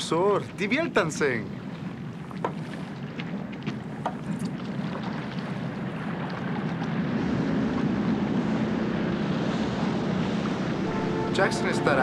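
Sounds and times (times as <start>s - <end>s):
sea noise: 0.0s - 12.0s
wind: 0.0s - 12.0s
boat engine droning: 8.8s - 12.0s.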